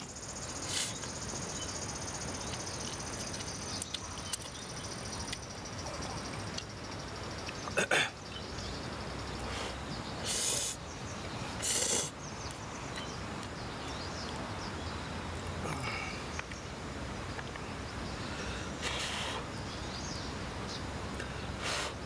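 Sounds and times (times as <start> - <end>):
steady low background noise: 0.0 - 22.0
man slurping noodles: 11.6 - 12.2.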